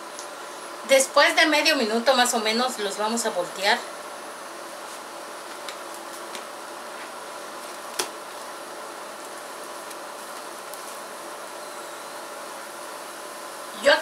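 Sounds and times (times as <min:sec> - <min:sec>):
food frying in oil: 0:04.0 - 0:14.0.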